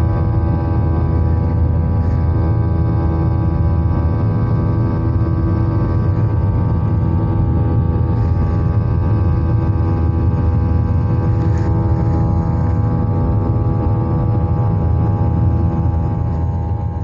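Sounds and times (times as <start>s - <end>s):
airliner engine drone in cabin: 0.0s - 17.0s.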